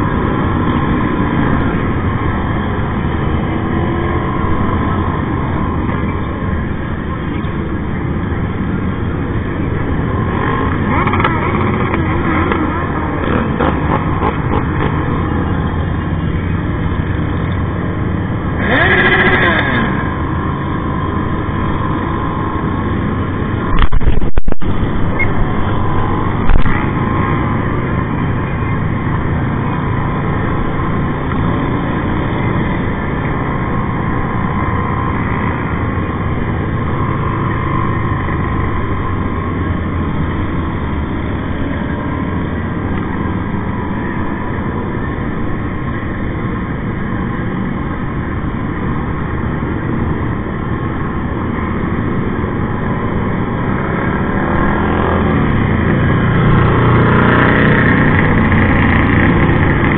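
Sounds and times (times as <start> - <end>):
motorcycle engines droning: 0.0 - 59.9
nearby engine revving: 10.2 - 15.6, 18.4 - 22.0
wind rush on microphone: 12.7 - 59.9
loud burst of noise: 18.6 - 20.2.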